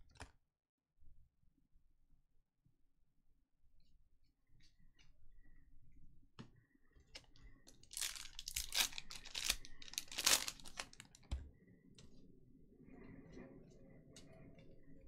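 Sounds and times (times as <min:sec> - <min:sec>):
card pack wrapper tearing and crinkling: 0:07.8 - 0:11.1.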